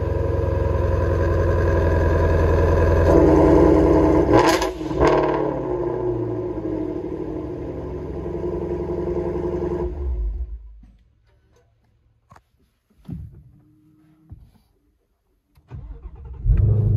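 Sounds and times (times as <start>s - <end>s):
sports car engine idling: 0.0s - 10.6s.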